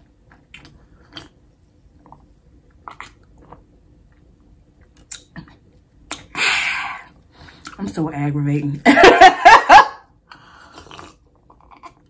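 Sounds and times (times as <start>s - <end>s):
wet lip smacks and clicks: 0.3s - 1.4s, 4.8s - 6.3s
sips and swallows: 10.3s - 12.0s.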